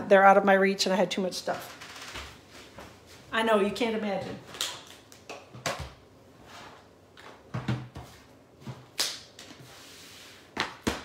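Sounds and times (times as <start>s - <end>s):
items knocking and clattering: 7.2s - 8.9s.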